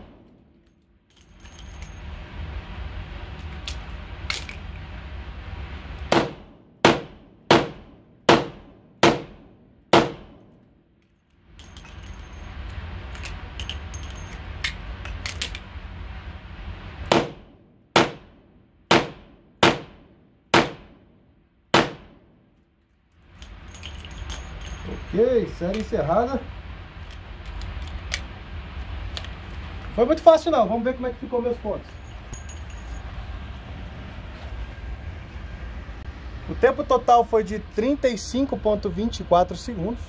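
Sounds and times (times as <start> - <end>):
revolver shots ringing indoors: 6.1 - 10.9, 17.1 - 22.5.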